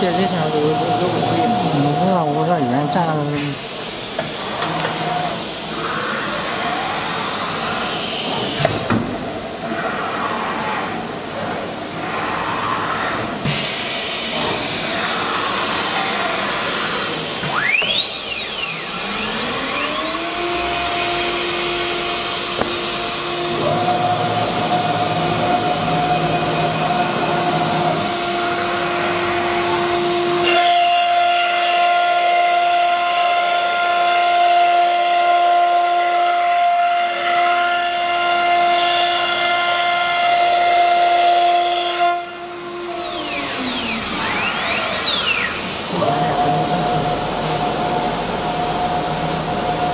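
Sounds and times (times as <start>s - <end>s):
router spindle whine: 0.0s - 49.9s
hiss of machine noise: 3.4s - 30.5s.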